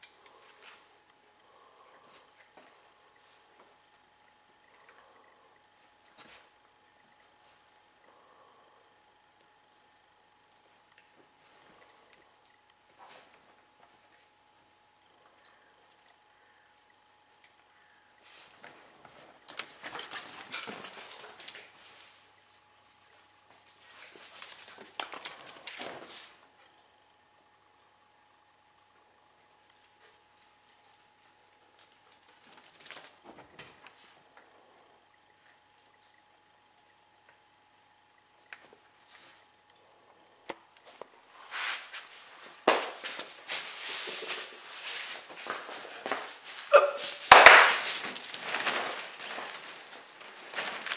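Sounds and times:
dogs scuffling and scratching: 18.3 - 26.4, 40.9 - 50.9
fabric tunnel rustling: 47.4 - 50.9.

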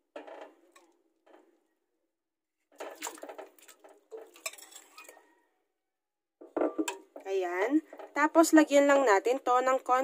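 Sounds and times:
meat dropping into water splashing: 2.8 - 5.1
spoon and bowl clinking on pot: 4.2 - 5.3.

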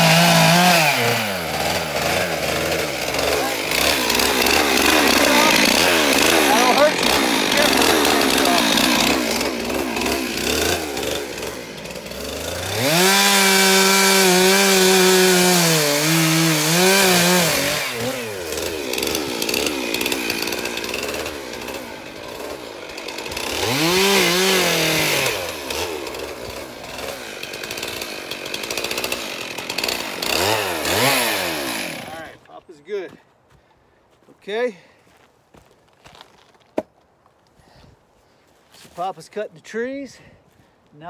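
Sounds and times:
chainsaw revving: 0.0 - 32.6.

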